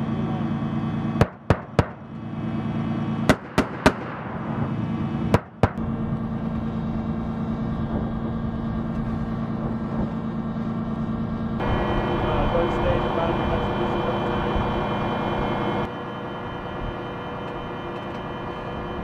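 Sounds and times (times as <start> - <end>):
vehicle engine idling: 4.5 - 19.0.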